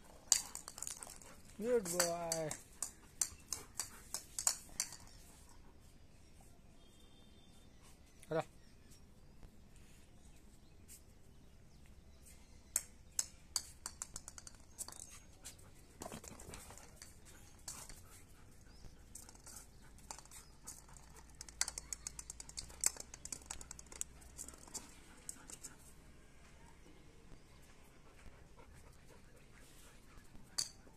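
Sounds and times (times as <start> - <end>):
dog claws clicking on concrete: 0.1 - 5.2, 12.7 - 15.3, 16.0 - 25.8.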